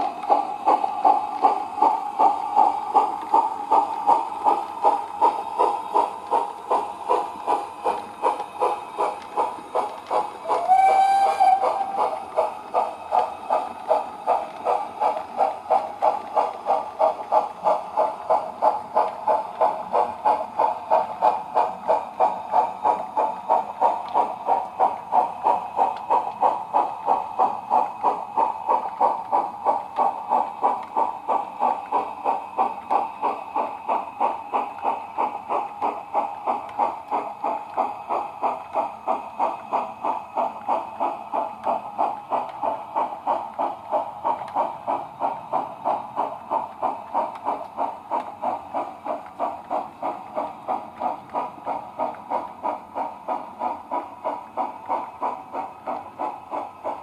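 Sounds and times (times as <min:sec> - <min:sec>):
model steam locomotive chuffs: 0:00.0 - 0:57.0.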